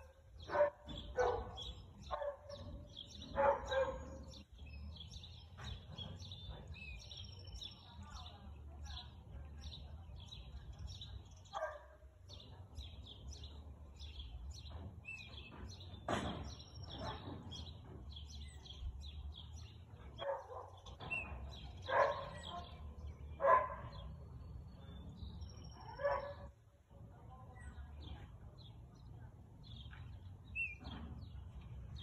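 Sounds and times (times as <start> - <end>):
small birds chirping: 0.0 - 32.0
dog barking: 0.4 - 4.4, 11.5 - 12.0, 20.2 - 20.9, 21.8 - 22.8, 23.4 - 24.1, 25.8 - 26.5.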